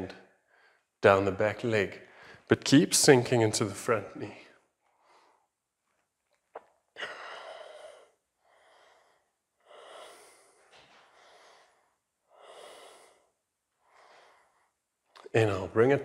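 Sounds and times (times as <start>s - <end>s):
person breathing: 0.3s - 1.0s, 2.0s - 2.5s, 4.4s - 5.6s, 7.0s - 14.9s.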